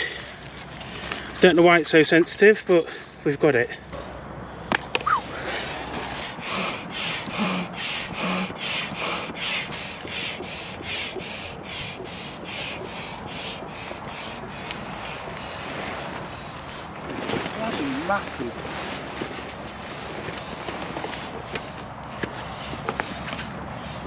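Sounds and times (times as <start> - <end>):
air pump strokes: 5.0 - 24.0.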